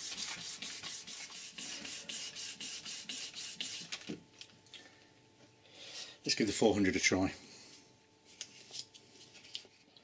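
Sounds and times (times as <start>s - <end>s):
sandpaper rubbing on metal: 0.0s - 3.9s.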